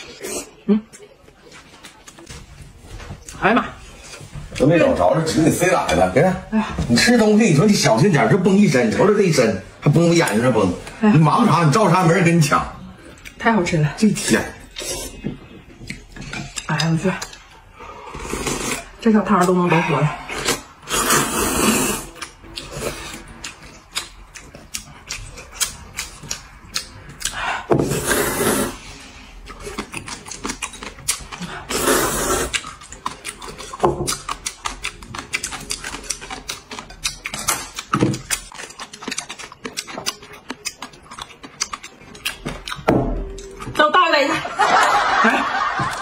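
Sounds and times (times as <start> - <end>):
people slurping noodles: 0.0 - 0.9, 14.2 - 15.2, 17.8 - 19.0, 19.6 - 23.9, 27.2 - 36.2.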